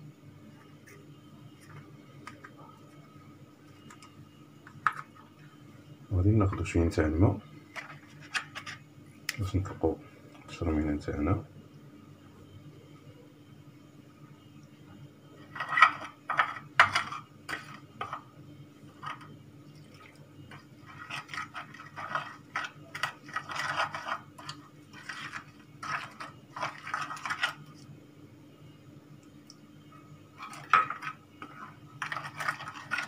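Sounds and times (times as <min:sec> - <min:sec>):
steady low hum: 0:00.0 - 0:33.0
spoon scraping ceramic dish: 0:20.9 - 0:27.6, 0:30.4 - 0:33.0.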